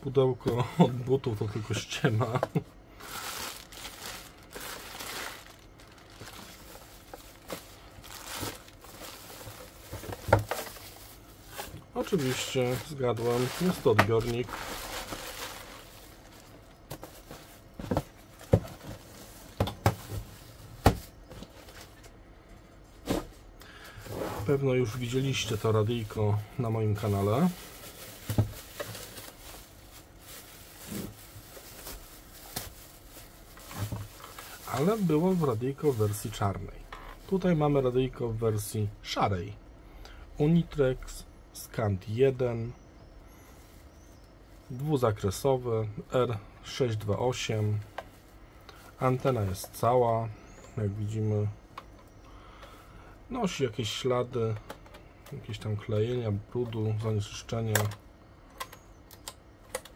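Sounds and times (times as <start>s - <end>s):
plastic bags crinkling: 1.6s - 22.0s, 24.9s - 37.6s.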